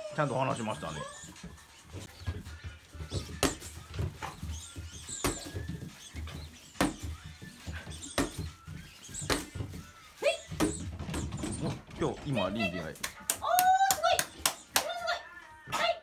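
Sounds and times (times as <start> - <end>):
puppies whimpering: 0.0 - 12.0.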